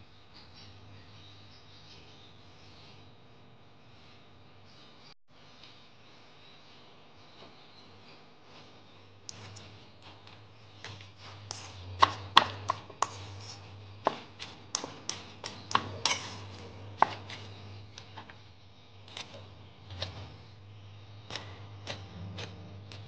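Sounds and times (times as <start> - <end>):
fork clinking against ceramic bowl: 14.8 - 17.4.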